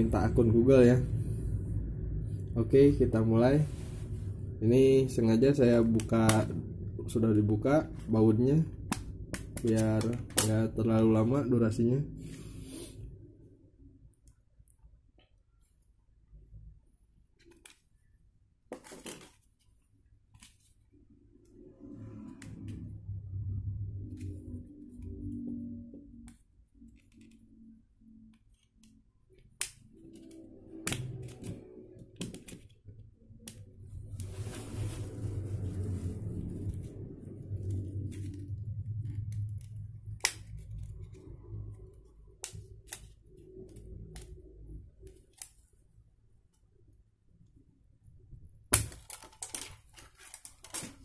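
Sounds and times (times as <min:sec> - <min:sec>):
hand rustling scrape: 0:34.2 - 0:36.8.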